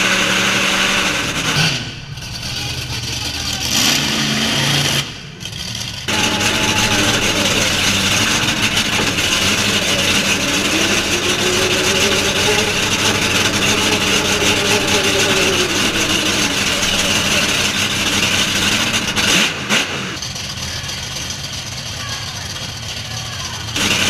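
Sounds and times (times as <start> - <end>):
truck engine revving: 0.0 - 24.0.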